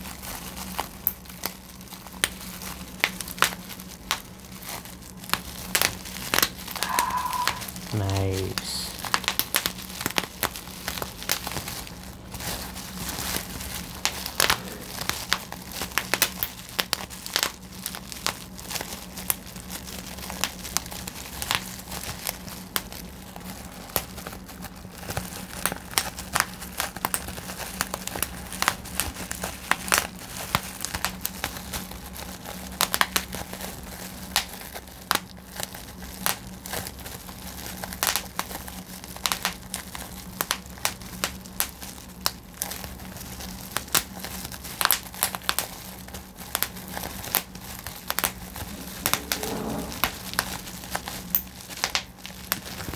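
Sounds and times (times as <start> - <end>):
bubble wrap popping: 0.0 - 52.9
plastic sheet crinkling: 0.0 - 52.9
steady low hum: 1.7 - 26.0, 46.4 - 52.3.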